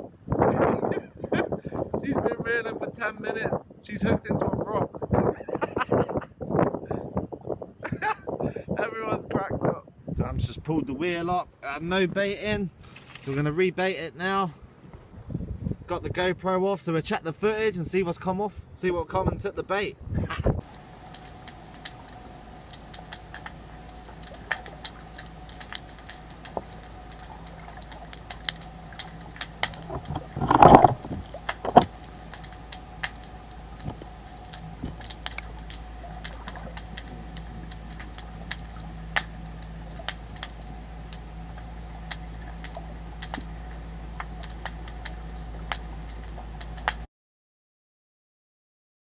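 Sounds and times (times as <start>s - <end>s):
bursts of noise: 20.6s - 47.0s
sharp clicks and crackles: 20.6s - 47.1s
steady low underwater hum: 20.6s - 47.1s.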